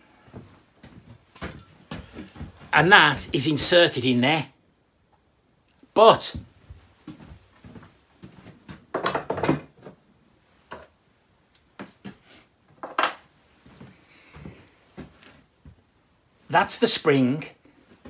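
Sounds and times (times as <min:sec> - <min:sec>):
metal tools clinking on workbench: 0:01.4 - 0:01.8, 0:11.8 - 0:13.3.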